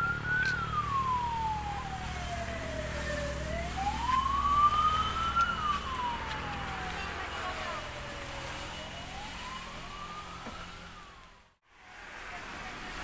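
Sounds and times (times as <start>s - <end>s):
emergency siren wailing: 0.0s - 11.7s.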